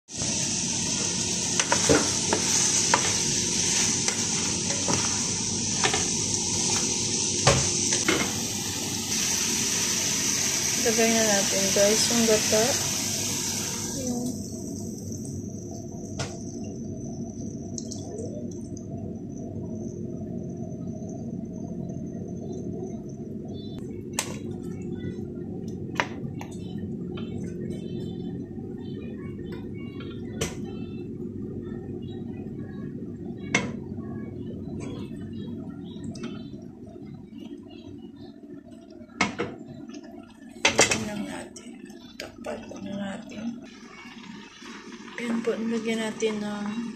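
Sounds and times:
vegetables sizzling in a pan: 0.1s - 16.7s, 42.4s - 46.9s
steady low hum: 0.1s - 46.9s.

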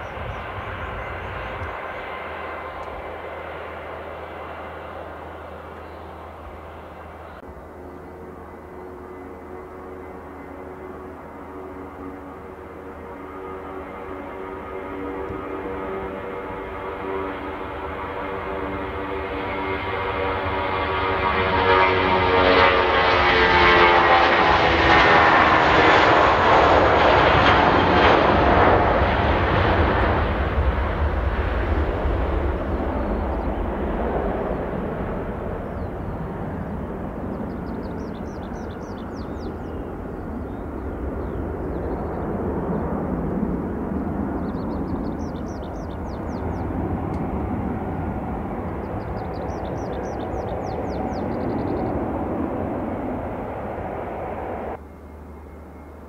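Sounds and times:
jet engines roaring: 0.0s - 56.0s
songbird trilling: 37.3s - 42.2s, 44.4s - 46.7s, 48.8s - 52.0s.

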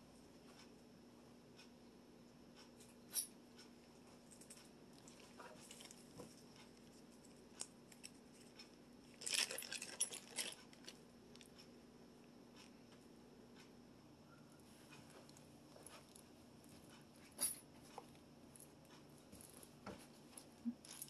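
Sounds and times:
faint steady hum: 0.0s - 21.0s
rattling clicks and rustling: 7.9s - 11.0s.

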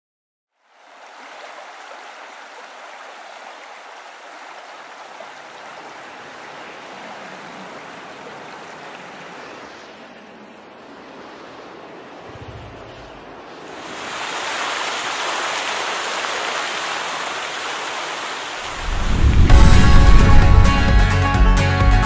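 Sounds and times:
steady rushing sound: 18.6s - 21.5s.

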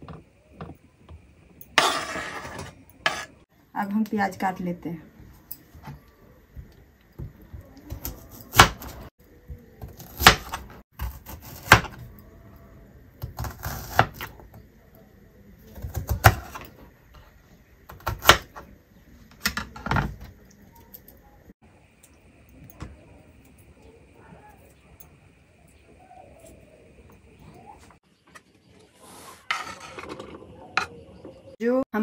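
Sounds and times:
knife slicing onion: 7.6s - 9.1s, 9.7s - 12.1s, 13.2s - 14.4s, 15.6s - 16.8s, 17.9s - 18.7s.

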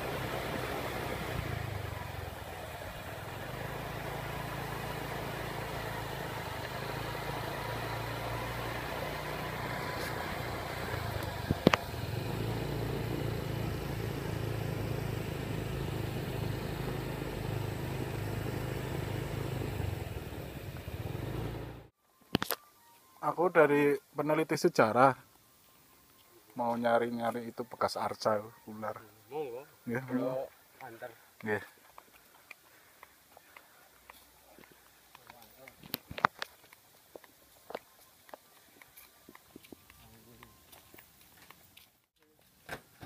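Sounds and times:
small motorcycle engines humming: 0.0s - 21.9s.

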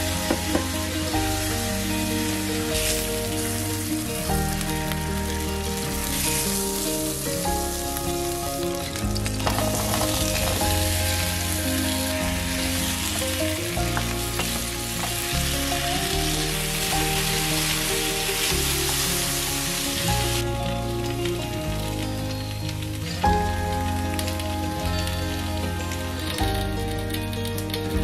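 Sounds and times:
background music with bass: 0.0s - 28.0s
potatoes sizzling in frying pan: 0.0s - 28.0s.

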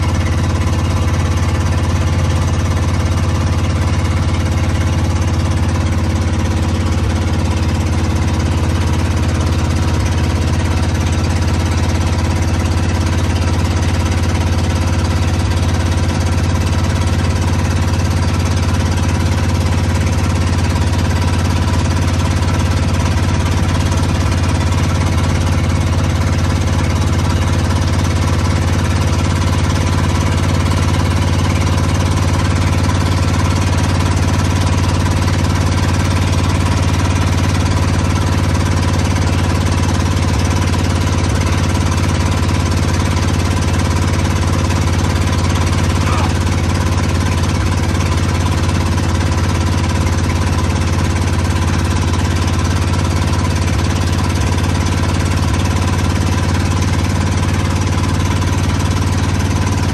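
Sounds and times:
loud truck engine rumbling: 0.0s - 59.9s.

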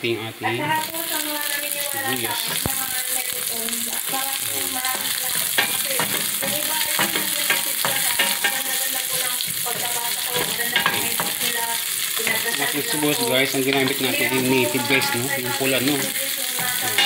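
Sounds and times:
garlic and onion sizzling in oil: 0.0s - 17.0s
wooden spatula scraping a pan: 3.4s - 17.0s.

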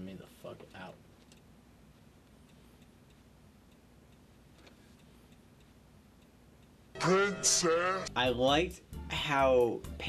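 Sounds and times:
faint regular ticking: 0.6s - 7.0s.

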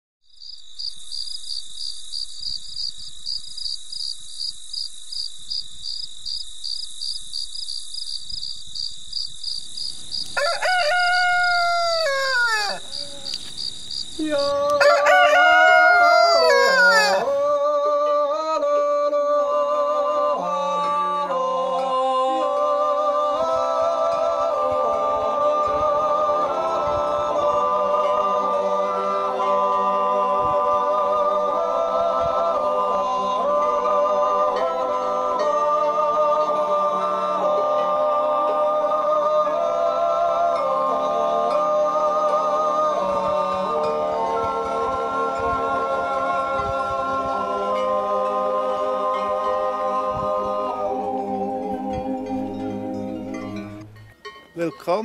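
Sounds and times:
rooster crowing: 10.1s - 17.6s
voices singing a cappella: 10.4s - 54.0s.

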